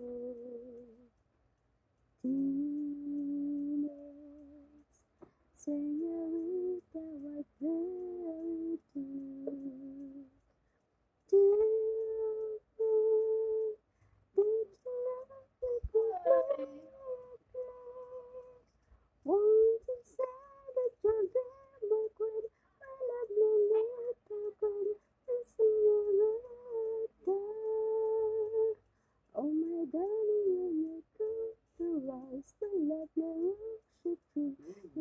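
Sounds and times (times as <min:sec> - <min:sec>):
woman humming: 0:00.0 - 0:01.1, 0:02.2 - 0:04.9, 0:05.6 - 0:10.4, 0:14.4 - 0:18.6.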